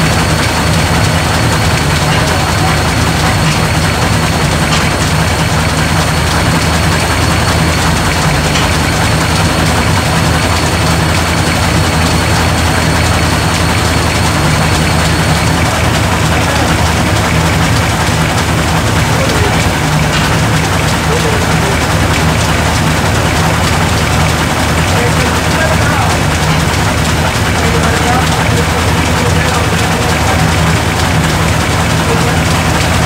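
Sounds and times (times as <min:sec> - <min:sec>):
tractor engine idling: 0:00.0 - 0:33.0.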